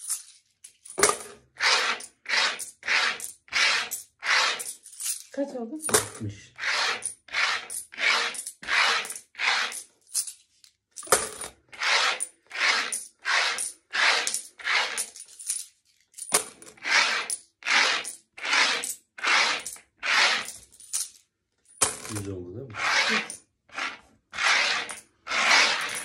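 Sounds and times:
coins sliding across wooden table: 0:00.0 - 0:26.0.

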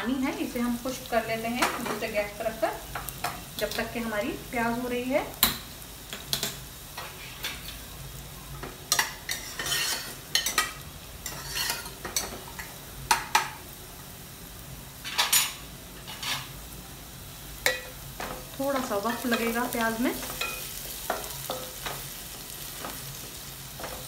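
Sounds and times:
onions sizzling in oil: 0:00.0 - 0:24.0
utensil scraping cooking pot: 0:09.0 - 0:10.6, 0:11.2 - 0:12.0.

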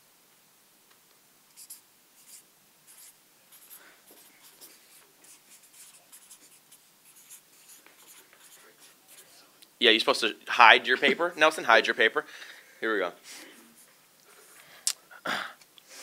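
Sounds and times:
pens scratching on paper: 0:01.5 - 0:09.4.

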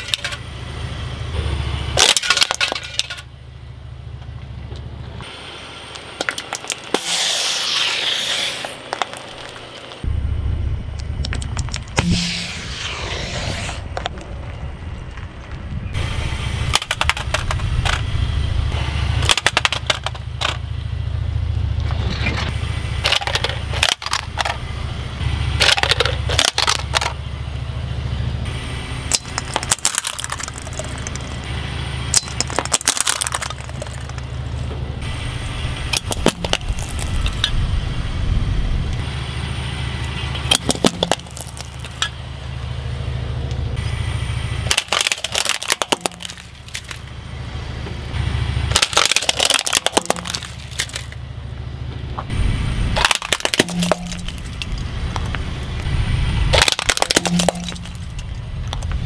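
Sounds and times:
car low rumble: 0:00.0 - 0:59.0
tyre crushing objects: 0:36.0 - 0:37.4, 0:40.5 - 0:42.0.

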